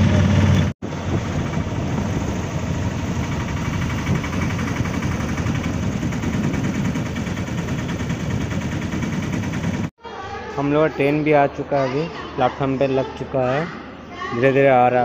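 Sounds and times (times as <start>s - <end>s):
road traffic and idling engines: 0.0s - 15.0s.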